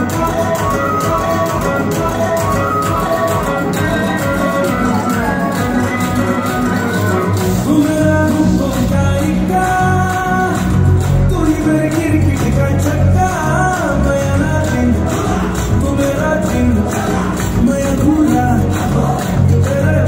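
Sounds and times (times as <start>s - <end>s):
song over sound system: 0.0s - 20.0s.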